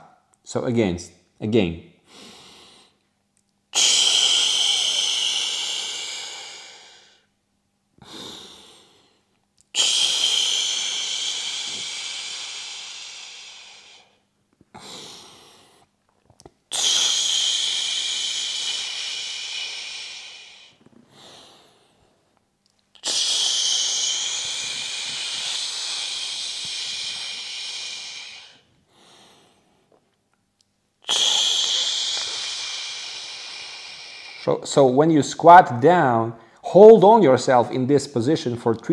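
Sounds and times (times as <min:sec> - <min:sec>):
man inhaling through nose: 0:03.8 - 0:07.3, 0:08.0 - 0:15.9, 0:16.7 - 0:22.2, 0:23.0 - 0:29.9, 0:31.0 - 0:34.5
hissing exhale through mouth: 0:23.0 - 0:29.3, 0:31.1 - 0:34.5.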